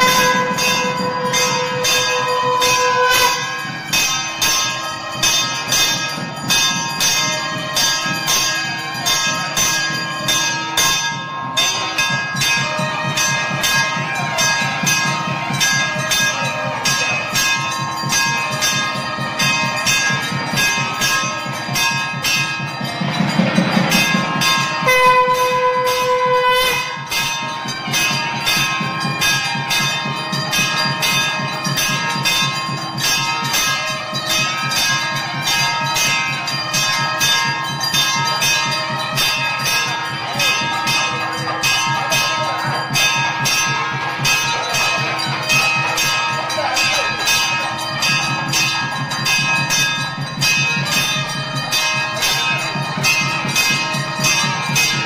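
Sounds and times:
held horn-like tone: 0.0s - 3.6s, 24.8s - 27.0s
temple bells ringing: 0.0s - 55.0s.

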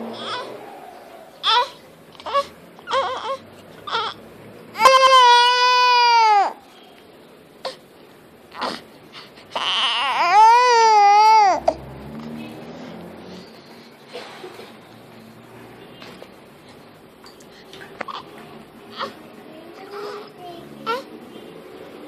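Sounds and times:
infant crying: 0.1s - 0.6s, 1.4s - 4.2s, 4.8s - 6.6s, 8.5s - 8.9s, 9.5s - 11.8s, 18.9s - 19.2s, 20.8s - 21.1s.

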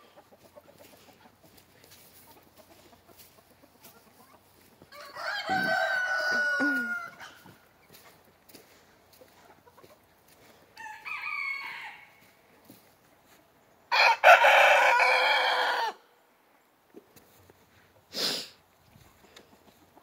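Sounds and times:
rooster crowing: 4.9s - 7.5s, 10.8s - 12.3s, 13.9s - 16.0s
faint rooster call: 4.9s - 7.6s, 10.8s - 12.4s, 13.9s - 16.0s.

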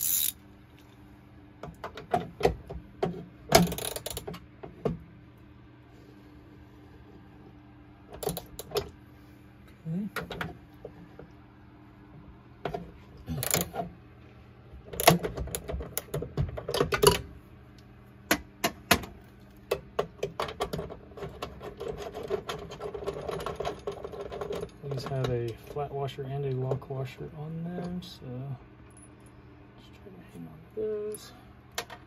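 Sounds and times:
ratchet wrench clicking: 0.0s - 0.4s, 3.6s - 4.2s, 13.4s - 13.7s.

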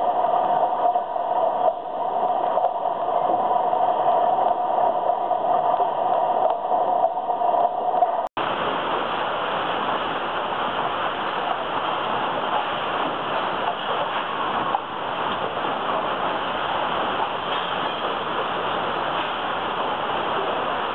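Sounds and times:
conveyor machinery hum: 0.0s - 20.9s.

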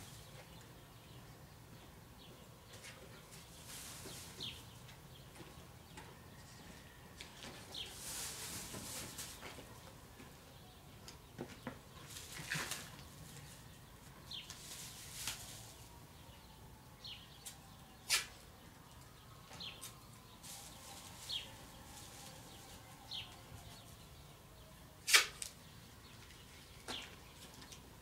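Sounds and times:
masking tape pulled off roll: 25.1s - 25.5s
tape snapping: 25.1s - 25.5s.

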